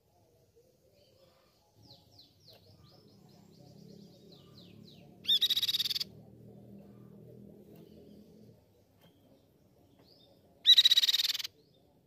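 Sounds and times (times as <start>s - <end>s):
bird singing: 0.8s - 12.0s
faint low rumble: 2.5s - 10.6s
loud bird trill: 3.8s - 6.2s, 10.6s - 11.6s.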